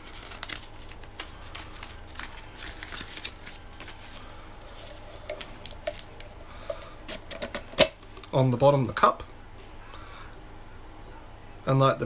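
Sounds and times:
packaging rustling: 0:00.0 - 0:08.3.

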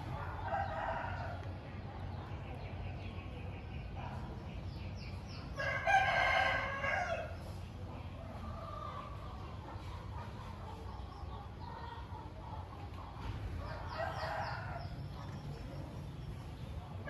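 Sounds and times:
rooster crowing: 0:05.6 - 0:07.4.

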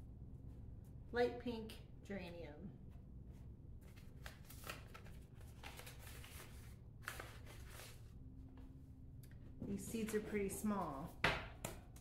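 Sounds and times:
paper envelope crinkling: 0:03.8 - 0:08.2.

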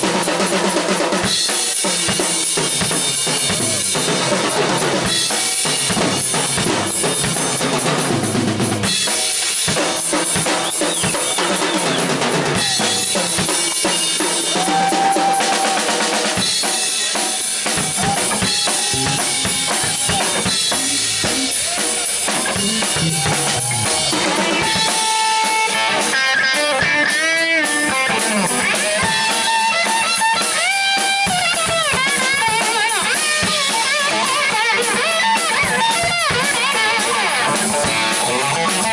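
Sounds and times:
drum kit playing: 0:00.0 - 0:38.9
bass guitar: 0:02.1 - 0:09.1, 0:12.1 - 0:13.6, 0:17.6 - 0:30.6, 0:31.2 - 0:38.9
electric guitar bent notes: 0:17.8 - 0:28.8.

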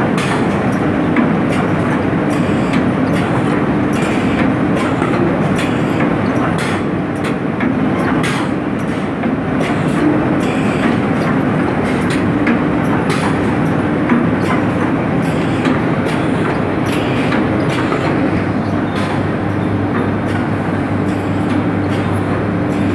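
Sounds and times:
sharp mechanical clacks: 0:00.2 - 0:18.3.

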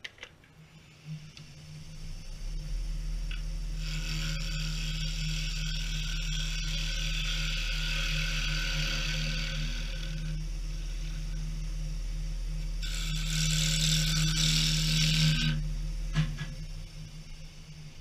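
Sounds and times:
wood lathe humming: 0:00.8 - 0:18.0
hiss of wood shaving: 0:03.7 - 0:11.6, 0:12.8 - 0:15.6.

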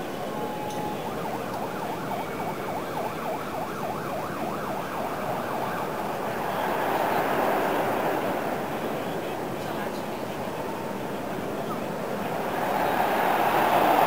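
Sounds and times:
street noise: 0:00.0 - 0:14.0
siren yelping: 0:00.2 - 0:07.3.

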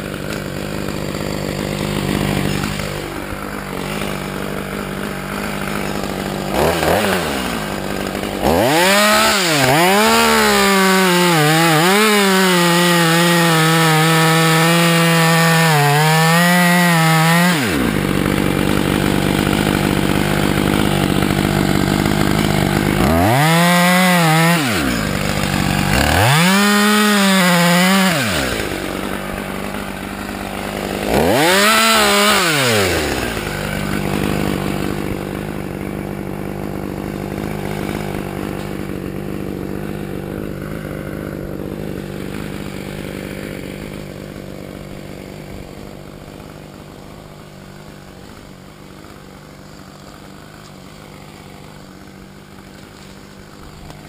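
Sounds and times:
chainsaw revving and idling: 0:00.0 - 0:54.0.

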